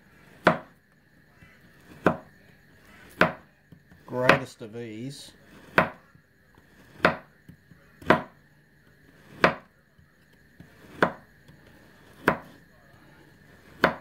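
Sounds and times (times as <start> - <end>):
knife chopping on plastic board: 0.3 - 0.8, 1.4 - 4.6, 5.4 - 8.4, 9.1 - 12.7, 13.4 - 14.0.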